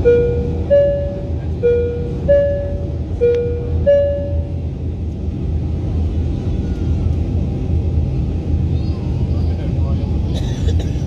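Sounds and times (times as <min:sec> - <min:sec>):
two-note alternating tone: 0:00.0 - 0:04.6
jet engines rumbling: 0:00.0 - 0:11.0.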